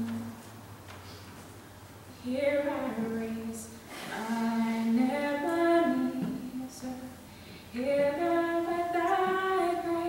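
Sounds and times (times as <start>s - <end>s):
woman singing into a microphone: 2.2s - 10.0s.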